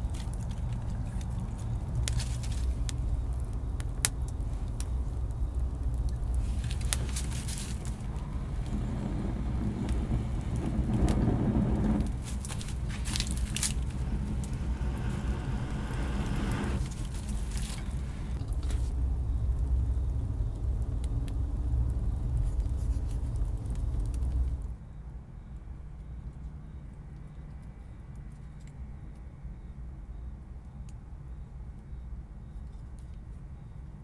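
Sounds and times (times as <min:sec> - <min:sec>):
wood fire crackling and popping: 0:00.0 - 0:24.8.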